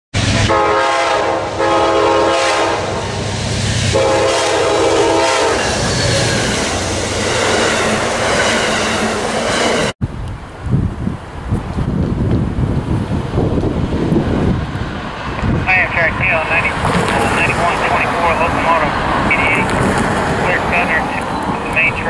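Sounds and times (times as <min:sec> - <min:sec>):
train rumbling and clattering past: 0:00.2 - 0:22.0
train horn blasts: 0:00.3 - 0:03.0, 0:03.9 - 0:05.7
wind on microphone: 0:10.0 - 0:22.0.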